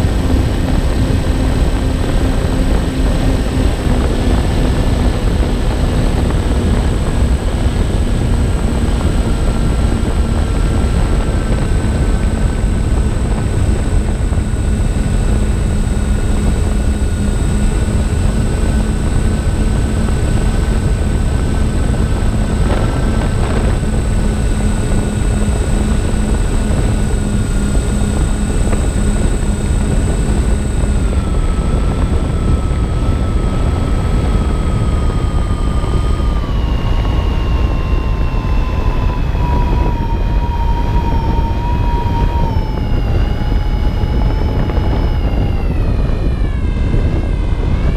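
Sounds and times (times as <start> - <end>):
electric motors and propellers whining: 0.0 - 47.9
heavy wind rush: 0.0 - 47.9.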